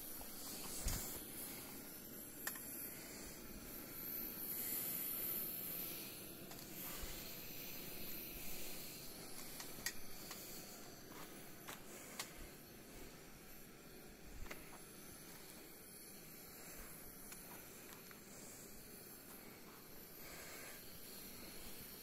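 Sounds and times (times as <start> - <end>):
steady hiss: 0.0 - 22.0
footsteps in cave: 9.2 - 12.6.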